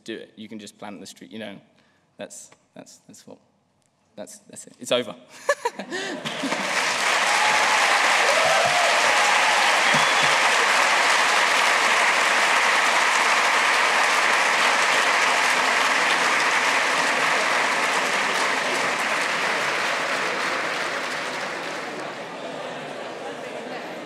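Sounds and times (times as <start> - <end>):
audience applauding: 6.0 - 23.6.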